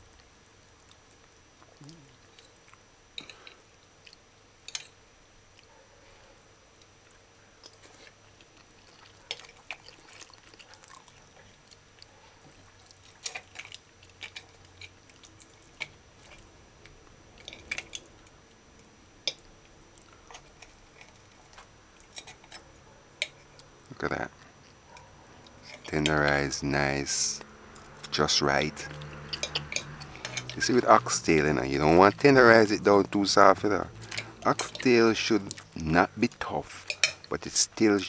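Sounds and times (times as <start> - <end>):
person chewing food: 0.0 - 5.0, 6.6 - 23.8, 24.6 - 26.1, 28.8 - 30.9, 33.9 - 35.8.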